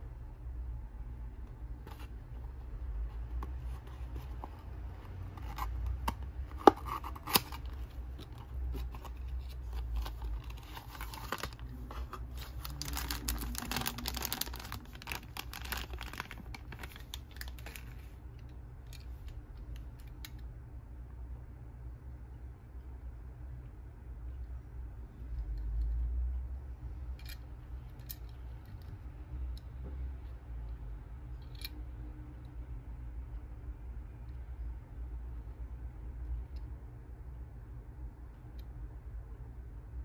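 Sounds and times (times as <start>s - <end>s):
cardboard rustling and scraping: 1.8s - 18.1s.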